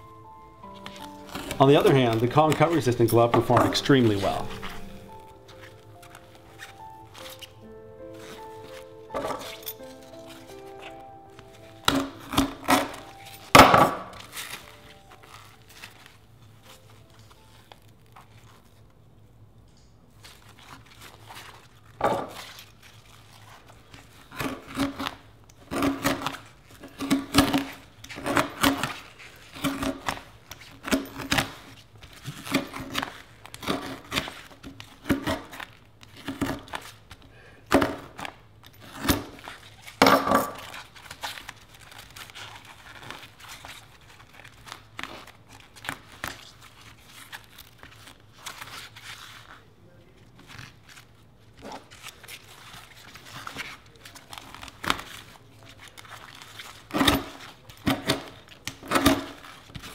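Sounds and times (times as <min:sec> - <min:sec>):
blade scraping across leather: 0:03.6 - 0:07.5.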